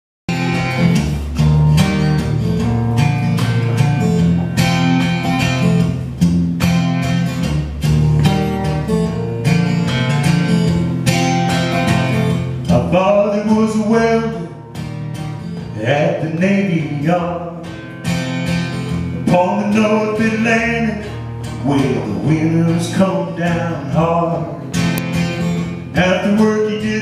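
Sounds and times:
acoustic guitar strumming: 0:00.3 - 0:27.0
man singing: 0:12.7 - 0:14.6, 0:15.7 - 0:17.8, 0:19.2 - 0:24.8, 0:25.9 - 0:27.0.

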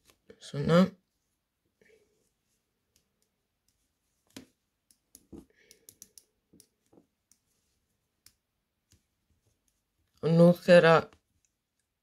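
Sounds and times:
knitting needles clicking: 0:02.8 - 0:07.5, 0:08.2 - 0:10.2.

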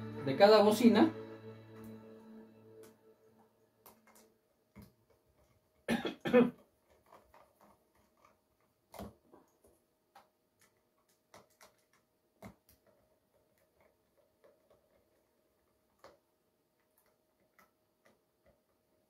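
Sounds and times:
person coughing: 0:05.9 - 0:06.6.

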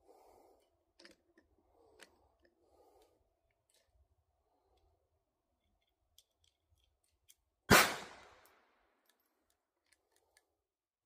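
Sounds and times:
pistol shot: 0:07.7 - 0:08.4.

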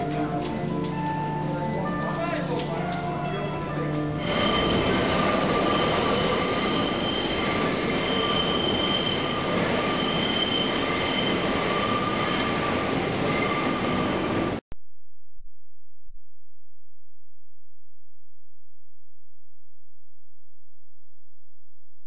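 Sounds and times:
subway cars rumbling: 0:02.6 - 0:14.6
train wheels squealing: 0:04.2 - 0:14.6.

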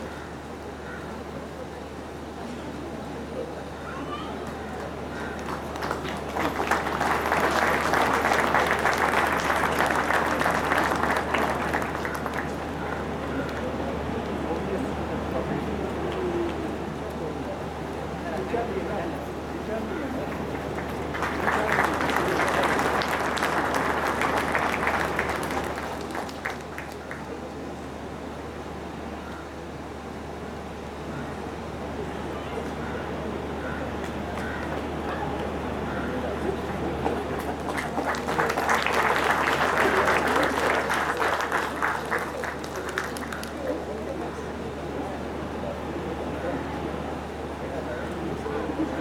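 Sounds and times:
crowd applause: 0:04.4 - 0:13.8, 0:19.7 - 0:27.5, 0:36.1 - 0:44.3.

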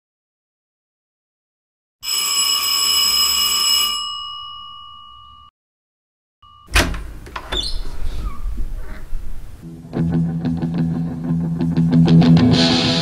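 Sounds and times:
doorbell ringing: 0:02.1 - 0:05.5, 0:06.4 - 0:08.2.

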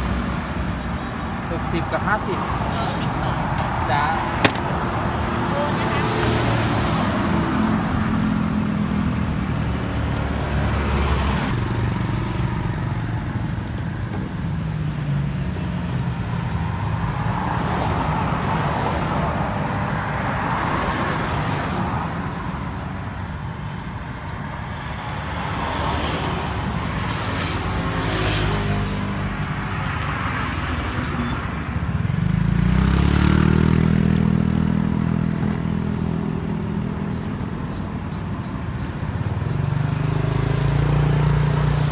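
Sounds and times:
cars passing: 0:00.0 - 0:41.9
motorbike engines passing: 0:25.0 - 0:41.9.

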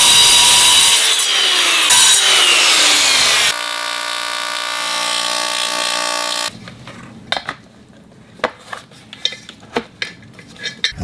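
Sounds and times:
circular saw cutting metal: 0:00.0 - 0:06.5.

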